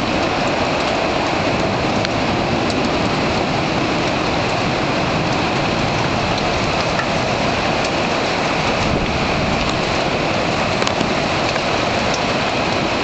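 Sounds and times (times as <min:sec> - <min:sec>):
drops or hailstones ticking: 0:00.0 - 0:13.0
heavy rain: 0:00.0 - 0:13.0
strong wind: 0:00.0 - 0:13.0.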